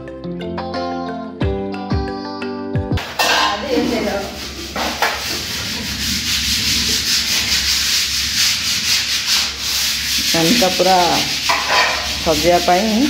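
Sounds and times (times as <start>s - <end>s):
scratchy rubbing noise: 3.3s - 13.0s.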